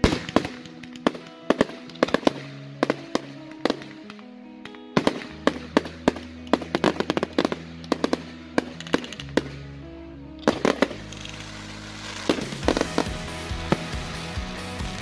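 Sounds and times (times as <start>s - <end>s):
fireworks bangs and crackles: 0.0s - 4.2s, 5.0s - 9.6s, 10.4s - 15.0s
music with long held notes: 0.0s - 15.0s.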